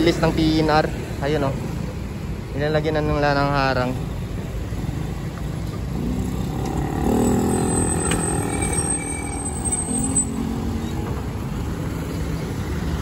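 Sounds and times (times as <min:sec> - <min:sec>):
low traffic rumble: 0:00.0 - 0:13.0
motorcycles and cars passing: 0:00.0 - 0:13.0.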